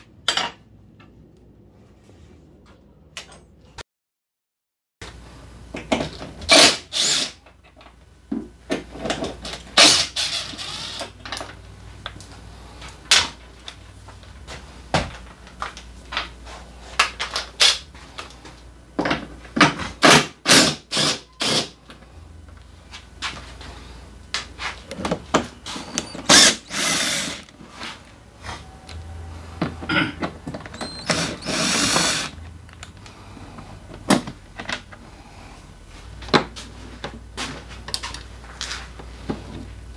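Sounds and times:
cordless drill spinning screws: 6.5s - 7.4s, 9.8s - 11.1s, 20.5s - 21.7s, 25.8s - 27.5s, 30.8s - 32.4s.

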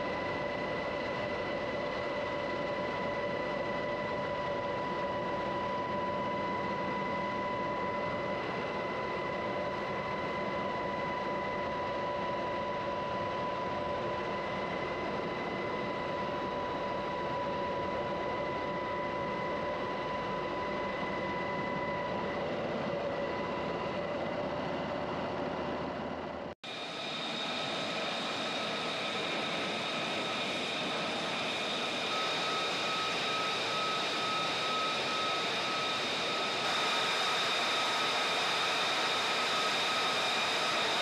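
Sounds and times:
jet engines idling: 12.8s - 41.0s.

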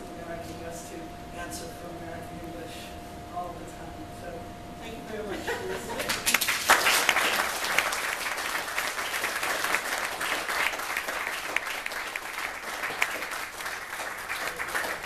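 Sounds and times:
audience applauding: 6.1s - 15.0s.

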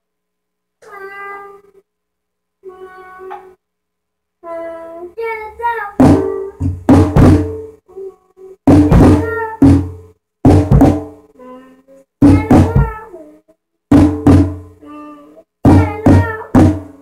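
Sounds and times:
child singing: 0.8s - 1.8s, 2.6s - 3.6s, 4.4s - 6.7s, 7.9s - 9.9s, 11.4s - 13.5s, 14.8s - 17.0s
acoustic drum kit hits: 6.0s - 7.7s, 8.7s - 11.2s, 12.2s - 13.0s, 13.9s - 14.8s, 15.7s - 17.0s.

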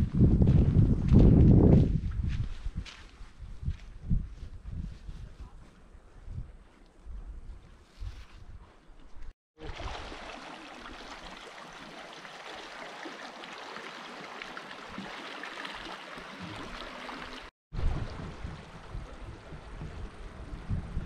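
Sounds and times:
stream running over rocks: 9.6s - 20.5s
low rumble: 17.8s - 21.0s.

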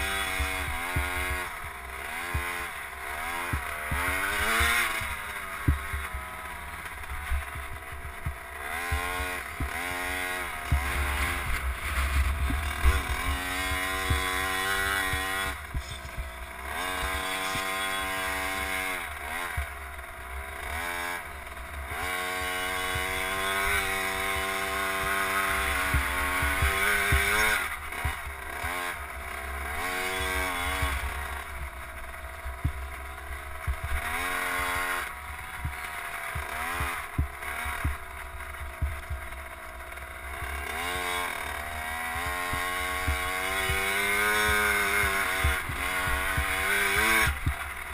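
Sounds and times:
two-stroke dirt bike engine revving: 0.0s - 47.9s
knocks from rough ground: 10.7s - 16.4s.

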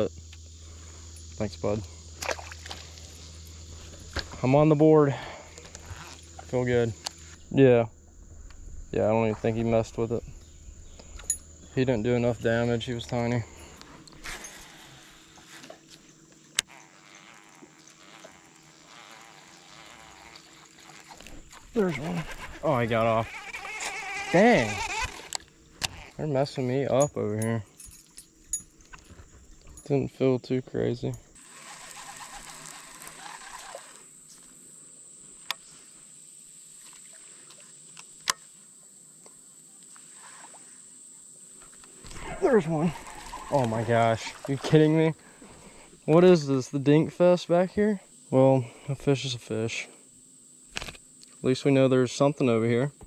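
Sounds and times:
faint hum and hiss: 0.0s - 53.0s
insects buzzing: 0.0s - 53.0s
fishing reel clicks: 31.4s - 34.1s.

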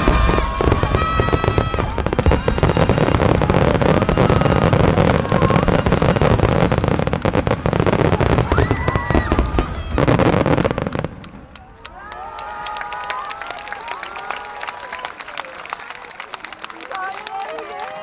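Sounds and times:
fireworks crackling and booming: 0.0s - 11.8s.

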